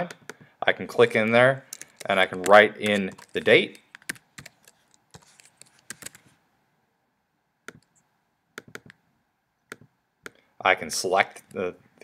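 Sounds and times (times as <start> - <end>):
computer keyboard keystrokes: 1.6 - 6.3, 8.6 - 9.0.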